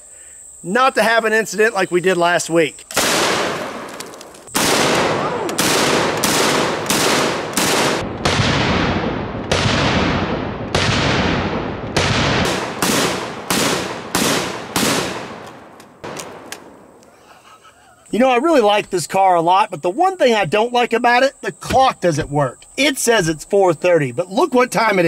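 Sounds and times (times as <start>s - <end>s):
shotgun shots with echo: 3.0s - 16.9s.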